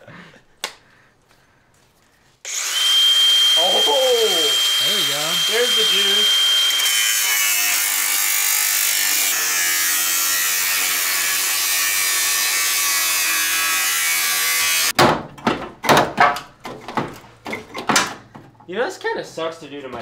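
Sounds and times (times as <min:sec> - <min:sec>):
angle grinder cutting metal: 0:02.5 - 0:14.9.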